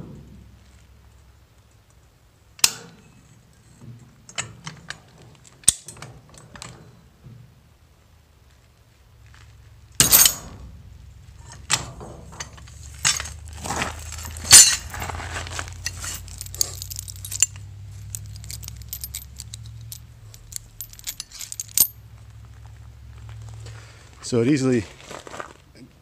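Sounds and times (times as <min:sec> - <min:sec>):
steel chain clinking and rattling: 0:09.3 - 0:23.6.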